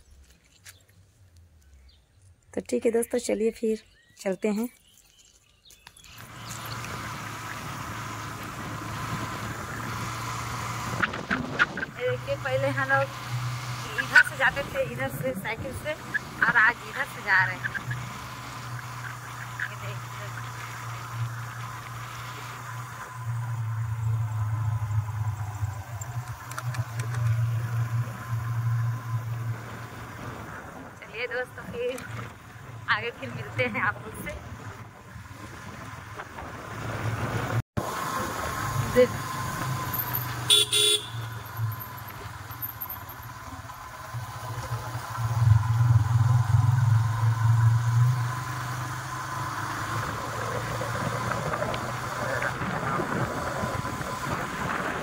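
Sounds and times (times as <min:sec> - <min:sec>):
wind and road noise: 0:00.0 - 0:55.0
motorcycle engine running: 0:06.1 - 0:55.0.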